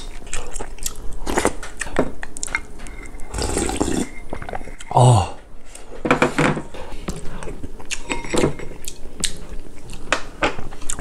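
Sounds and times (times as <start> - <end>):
spoon scraping ceramic bowl: 2.5 - 4.9
slurping mouth sounds: 3.2 - 5.0.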